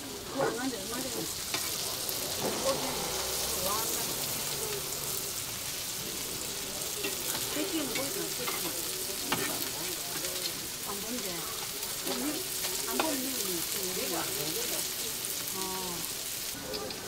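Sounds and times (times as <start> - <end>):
food sizzling in oil: 0.0 - 17.0
spatula tapping and scraping: 7.0 - 10.6.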